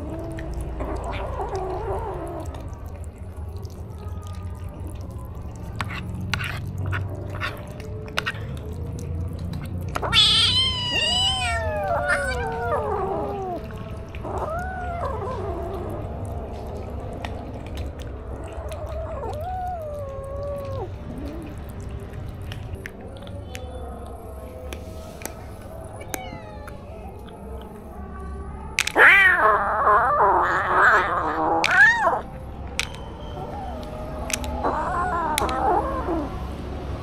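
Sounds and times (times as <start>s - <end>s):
soft eating clicks: 0.0s - 36.4s
kittens meowing: 10.0s - 16.8s, 18.4s - 21.8s, 25.6s - 27.8s, 28.8s - 36.5s.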